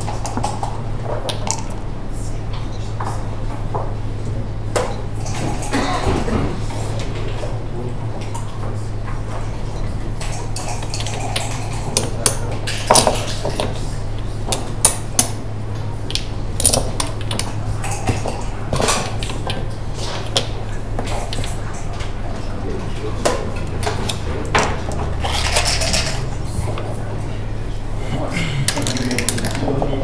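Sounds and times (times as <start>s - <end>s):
game checkers clacking on board: 16.1s - 22.1s, 28.7s - 29.7s.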